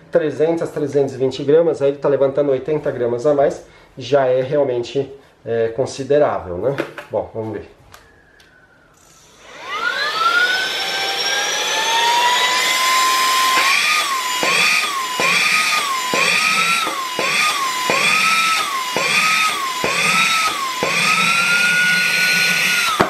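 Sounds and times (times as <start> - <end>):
handheld vacuum motor whining: 8.9 - 23.0
motor switching off: 8.9 - 23.0.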